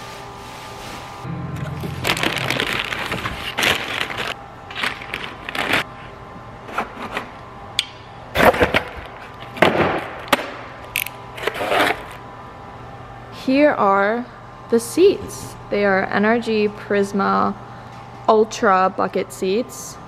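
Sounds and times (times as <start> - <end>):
plastic wrap crinkling: 1.7 - 5.9.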